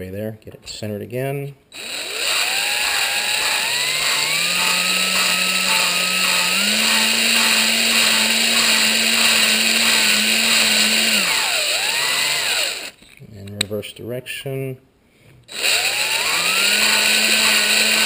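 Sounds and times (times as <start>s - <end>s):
power drill whining: 1.8s - 13.0s, 15.5s - 18.0s.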